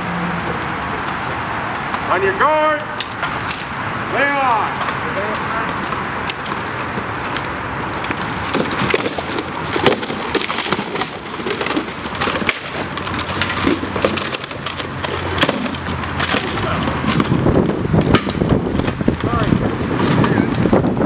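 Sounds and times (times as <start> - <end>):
rattan swords striking shields: 4.7 - 20.9
shields clashing: 4.7 - 21.0.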